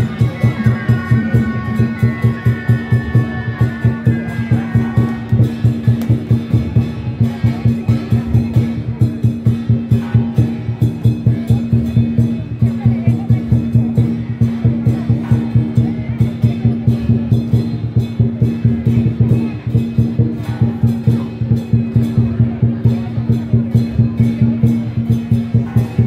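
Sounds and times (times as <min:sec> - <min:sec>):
drum gong and cymbals: 0:00.0 - 0:26.0.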